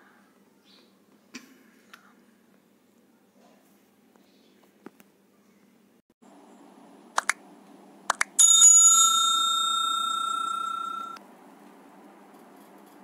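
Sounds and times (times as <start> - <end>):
quick double clicks: 7.2 - 7.4, 8.1 - 8.4
bell ringing: 8.4 - 11.2.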